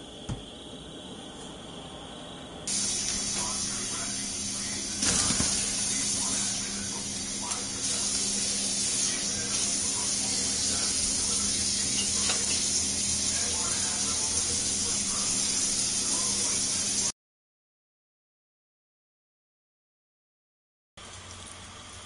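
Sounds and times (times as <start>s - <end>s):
faint voices: 2.7s - 17.1s
steady hiss: 2.7s - 17.1s.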